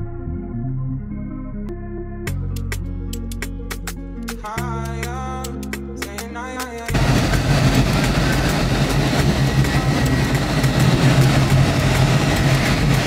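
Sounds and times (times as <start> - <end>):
music: 0.0 - 13.0
car engine running: 6.9 - 13.0
wind rushing: 6.9 - 13.0.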